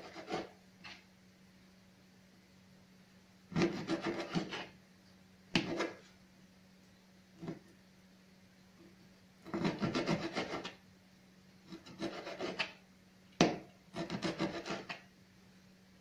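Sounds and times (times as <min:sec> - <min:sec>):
knife chopping on plastic board: 0:03.5 - 0:04.7, 0:05.5 - 0:06.0, 0:09.5 - 0:10.7, 0:13.4 - 0:15.0.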